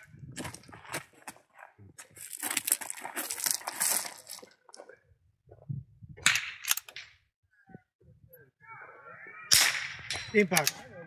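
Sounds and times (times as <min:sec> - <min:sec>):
gravel crunching: 0:00.0 - 0:05.0
gear rustling and scraping: 0:02.2 - 0:04.5.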